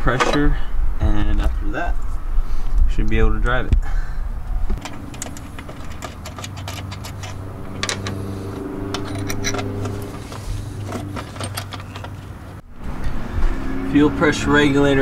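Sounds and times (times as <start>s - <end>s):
metal tools clinking: 4.8s - 12.6s.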